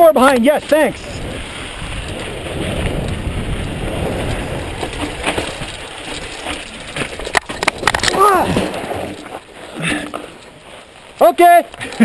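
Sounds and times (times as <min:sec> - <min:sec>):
bike tyres rolling on gravel: 0:00.0 - 0:12.0
bike knocking over rocks: 0:00.4 - 0:10.6.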